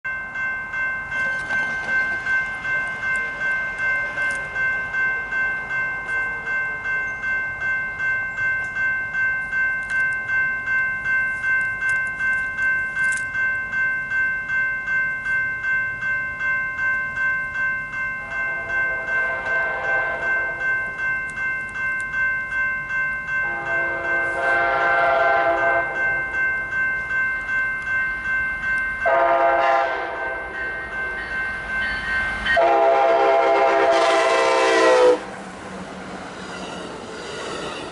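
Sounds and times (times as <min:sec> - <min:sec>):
railroad crossing bell ringing: 0:00.0 - 0:37.9
train horn blasts: 0:18.6 - 0:20.4, 0:23.4 - 0:26.0, 0:29.0 - 0:30.4, 0:32.6 - 0:35.4.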